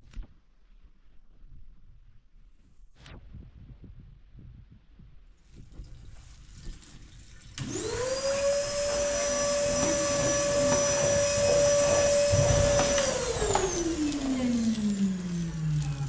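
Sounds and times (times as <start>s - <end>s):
electric motor whining: 7.5s - 16.0s.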